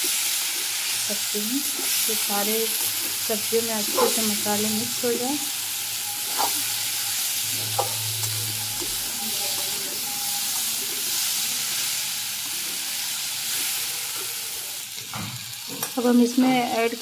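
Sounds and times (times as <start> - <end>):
vegetables sizzling in oil: 0.0 - 17.0
metal spatula scraping pan: 5.9 - 11.2.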